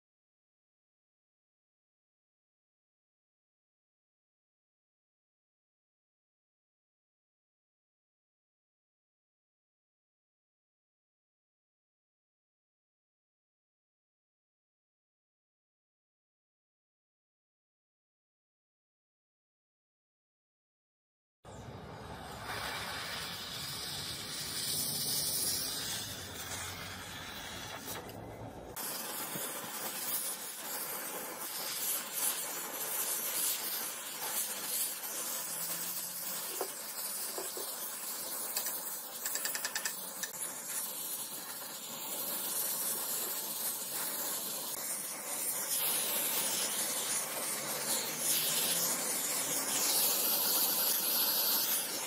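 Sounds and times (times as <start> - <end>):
spraying hiss: 21.5 - 52.0.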